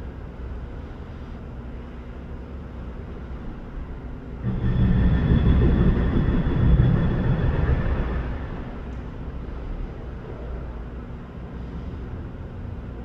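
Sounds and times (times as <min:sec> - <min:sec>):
heavy diesel engine rumble: 0:04.4 - 0:09.6
faint high whine: 0:04.4 - 0:10.6.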